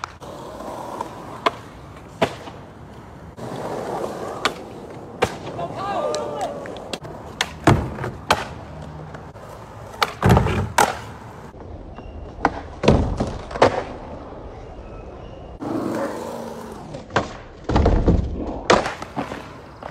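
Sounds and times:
skateboard cracking and slapping: 0.0 - 11.5, 12.4 - 14.1, 16.6 - 19.9
skateboard wheels rolling on concrete: 0.0 - 19.9.

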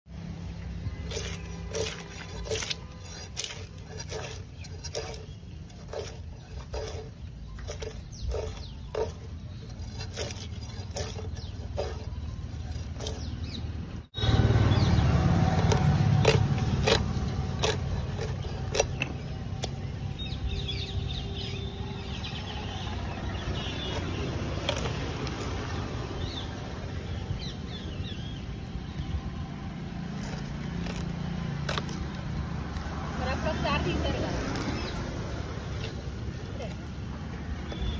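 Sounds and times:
fish scales scraping on blade: 1.0 - 13.6, 15.3 - 19.8.

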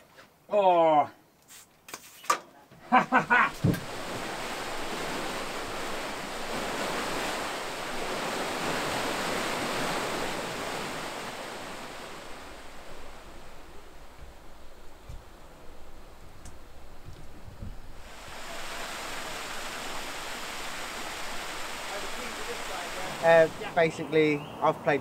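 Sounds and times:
water rushing through lock: 3.3 - 24.8
person speaking: 21.9 - 25.0.

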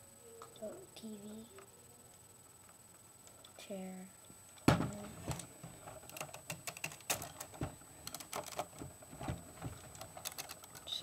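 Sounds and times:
plastic bricks clicking and clacking: 5.4 - 8.9, 9.7 - 11.0.

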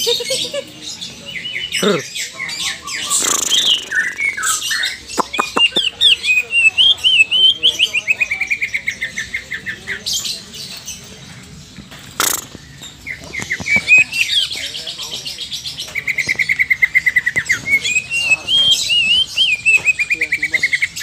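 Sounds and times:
bird rattling trill: 3.1 - 4.2, 12.0 - 14.5
bird singing chirps and whistles: 12.2 - 15.0, 15.7 - 21.0.

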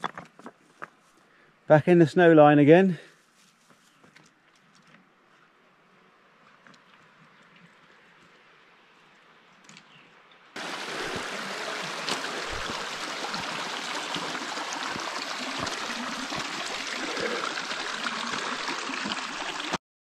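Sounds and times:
stream running over rocks: 10.6 - 19.8.

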